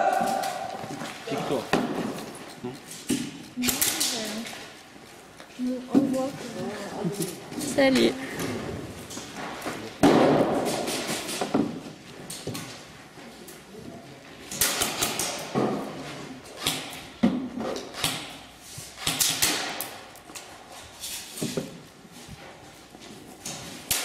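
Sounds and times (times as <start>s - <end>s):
pellets striking panels: 9.1s - 12.8s, 14.5s - 20.1s, 23.4s - 24.0s
airsoft guns firing: 10.0s - 11.4s, 14.5s - 15.6s, 17.9s - 18.4s, 19.0s - 20.0s.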